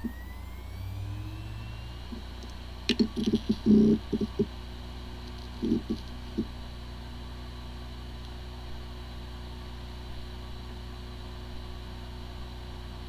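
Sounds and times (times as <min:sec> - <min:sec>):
hard drive hum and whine: 0:00.0 - 0:13.0.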